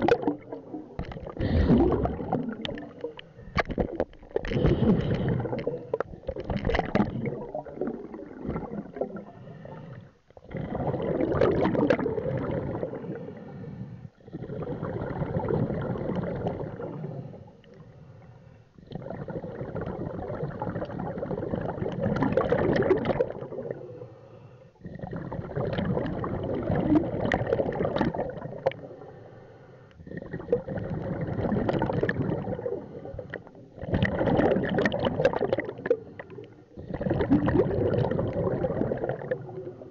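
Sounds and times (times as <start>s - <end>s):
gurgling rush of bubbles: 0.0s - 13.3s, 14.3s - 17.1s, 18.9s - 23.9s, 24.9s - 29.0s, 30.0s - 39.9s
diver breathing through regulator: 1.2s - 3.7s, 4.4s - 6.1s, 9.2s - 11.0s, 12.9s - 14.9s.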